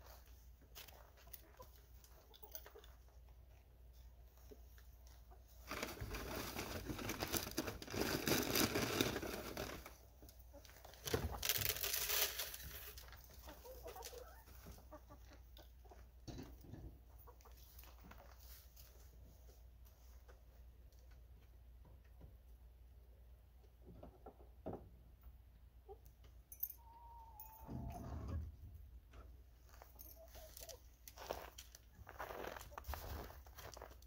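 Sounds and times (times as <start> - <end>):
rustling and crunching feed: 0.0 - 22.6, 25.9 - 34.0
hens clucking: 13.2 - 16.2.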